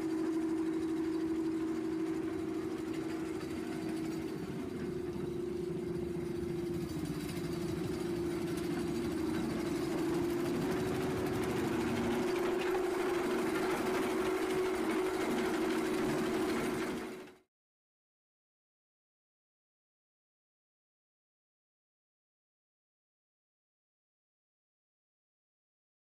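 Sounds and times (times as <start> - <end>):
screening machine humming: 0.0 - 17.4
soil and stone on conveyor: 2.8 - 17.1.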